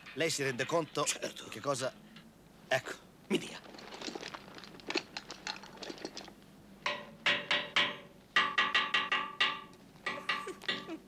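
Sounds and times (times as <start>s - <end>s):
faint clicks and rustles: 3.3s - 6.5s.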